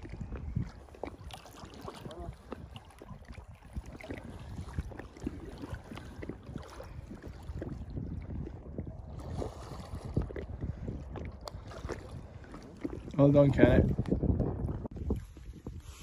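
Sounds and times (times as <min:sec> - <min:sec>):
water lapping and splashing: 0:00.0 - 0:16.0
wind rumbling on microphone: 0:00.0 - 0:16.0.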